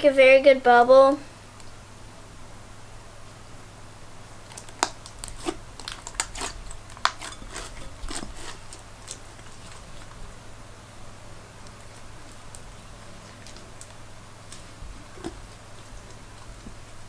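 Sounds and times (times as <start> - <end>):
beads crunching: 4.4 - 10.2.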